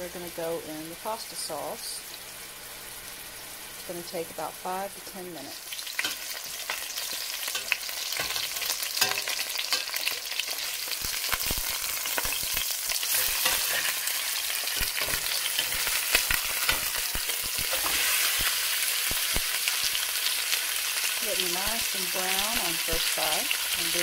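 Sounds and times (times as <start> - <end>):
meat sizzling in hot oil: 0.0 - 24.0
metal spatula scraping pot: 7.5 - 10.6, 13.0 - 18.2.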